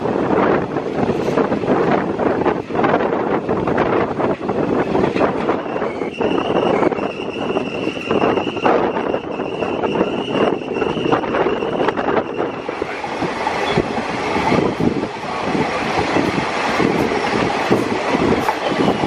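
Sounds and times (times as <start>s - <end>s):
freight train passing: 0.0s - 19.0s
train wheels clattering on rails: 0.6s - 11.2s, 15.8s - 19.0s.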